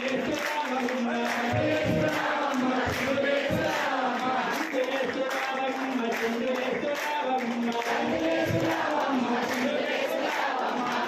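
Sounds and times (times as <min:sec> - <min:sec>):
voices chanting in held notes: 0:01.1 - 0:05.1, 0:07.7 - 0:11.0.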